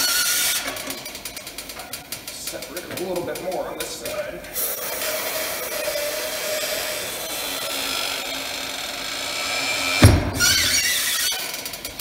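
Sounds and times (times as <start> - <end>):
pneumatic bead breaker hissing: 4.5 - 12.0
tire bead thump: 9.9 - 10.9.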